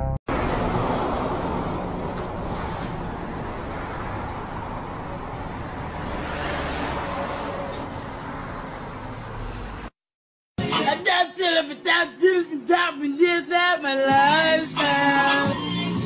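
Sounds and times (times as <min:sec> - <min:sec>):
road traffic rushing: 0:00.3 - 0:10.0.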